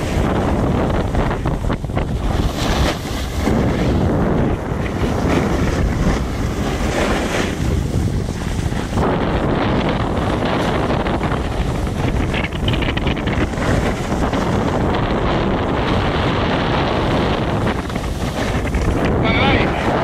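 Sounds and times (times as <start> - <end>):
wind buffeting the microphone: 0.0 - 20.0
skis scraping on packed snow: 2.2 - 12.3, 13.2 - 20.0.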